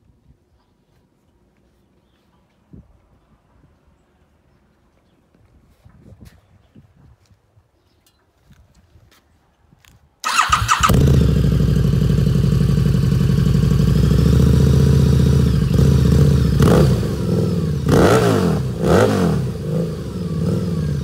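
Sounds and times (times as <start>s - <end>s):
motorcycle throttle blips: 10.2s - 21.0s
motorcycle engine idling: 10.3s - 17.9s.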